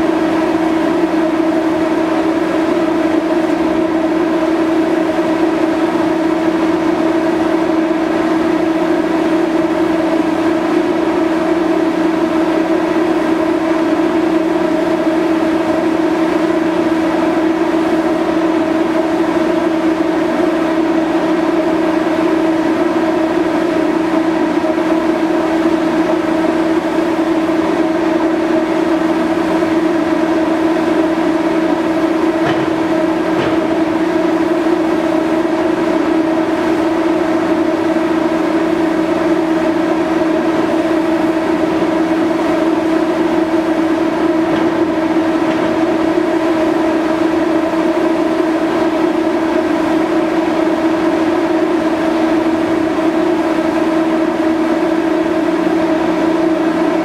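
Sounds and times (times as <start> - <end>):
ship machinery droning: 28.4 - 49.9
faint knocks: 32.4 - 33.8.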